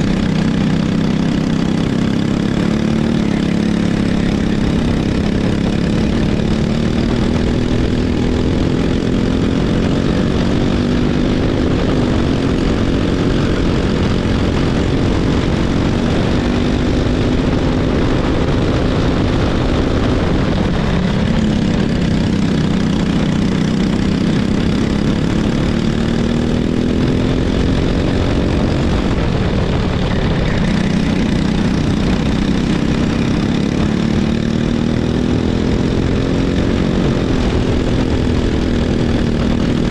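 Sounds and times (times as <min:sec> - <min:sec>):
racing kart engine: 0:00.0 - 0:39.9
steady low rumble: 0:26.5 - 0:34.3.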